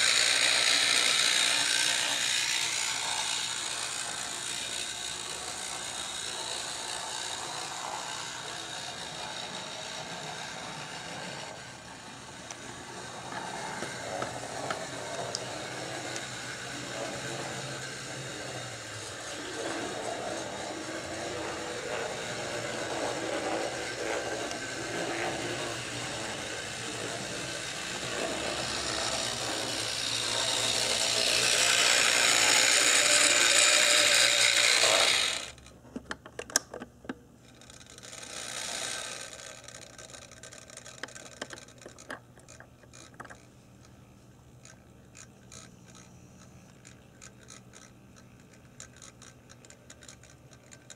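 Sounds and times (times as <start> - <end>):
model train motor whirring: 0.0 - 35.8, 37.4 - 50.9
small clicks: 36.0 - 44.0, 44.6 - 50.9.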